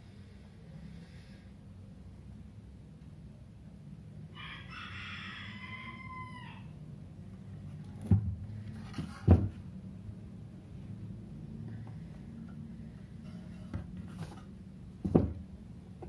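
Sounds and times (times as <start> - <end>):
rooster crowing: 4.3 - 6.8
plastic knocks on wooden desk: 15.0 - 15.4.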